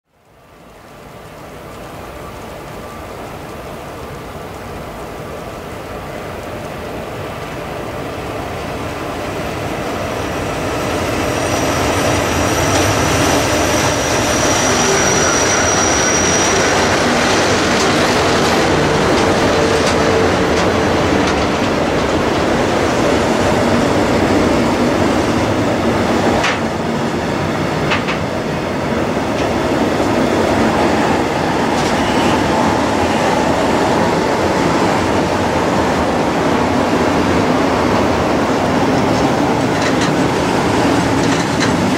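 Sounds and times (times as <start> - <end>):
wagons rumbling and clattering: 11.0 - 26.8, 29.3 - 41.9
locomotives climbing under load: 37.4 - 41.9.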